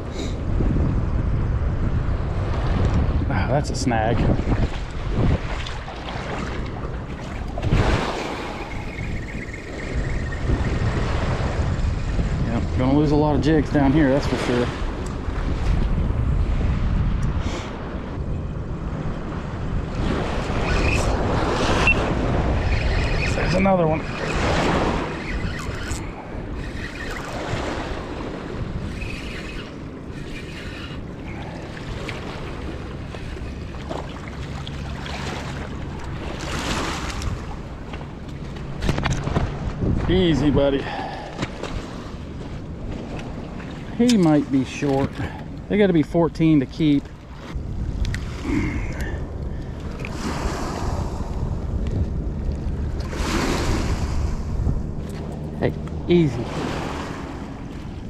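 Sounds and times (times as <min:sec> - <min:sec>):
wind buffeting microphone: 0:00.0 - 0:58.0
river waves lapping on gravel: 0:20.0 - 0:58.0.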